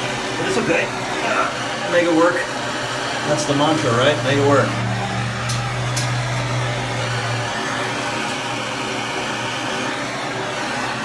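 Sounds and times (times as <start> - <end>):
blowtorch flame hissing: 0.0 - 11.0.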